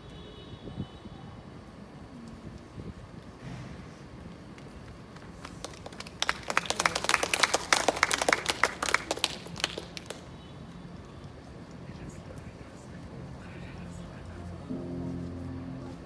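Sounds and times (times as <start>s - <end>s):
audience applauding: 5.1s - 10.3s.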